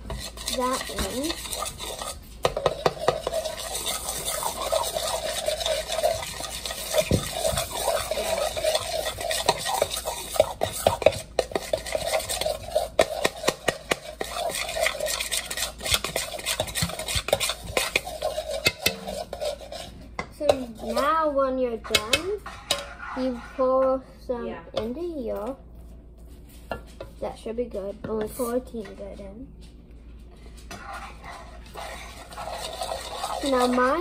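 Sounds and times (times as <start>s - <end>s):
spoon scraping in plastic bowl: 0.0s - 21.1s, 21.8s - 23.6s, 30.6s - 34.0s.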